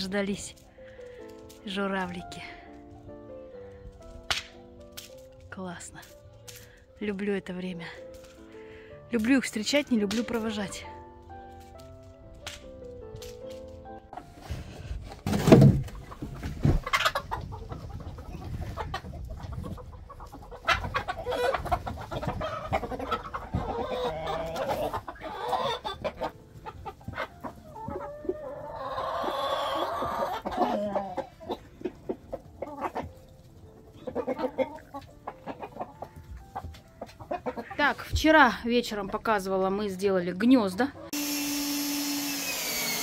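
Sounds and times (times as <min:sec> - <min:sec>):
hens and rooster clucking: 0:15.0 - 0:38.0.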